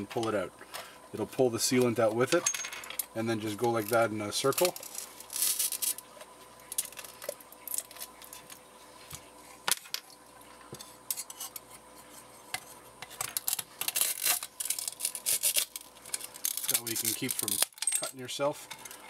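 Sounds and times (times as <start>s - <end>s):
glass shards clinking and scraping: 4.5s - 6.0s, 13.3s - 19.0s.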